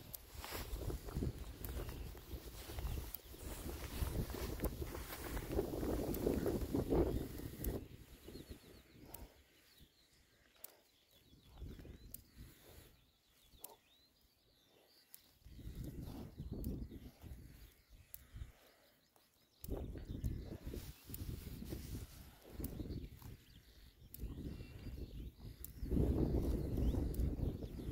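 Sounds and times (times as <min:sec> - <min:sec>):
wind gusts on microphone: 0:00.0 - 0:09.4, 0:19.6 - 0:27.9
small bird twittering: 0:00.0 - 0:27.9.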